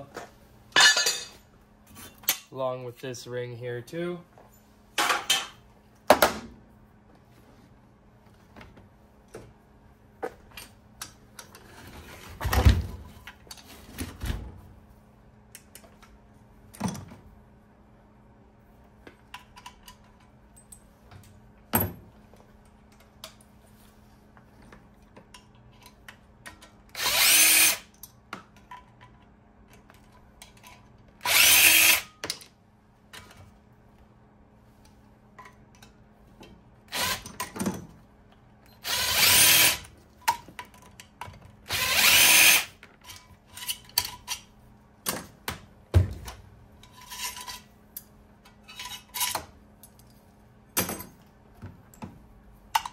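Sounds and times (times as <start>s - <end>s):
cordless power driver spinning: 27.0s - 27.9s, 31.2s - 32.1s, 41.7s - 42.7s.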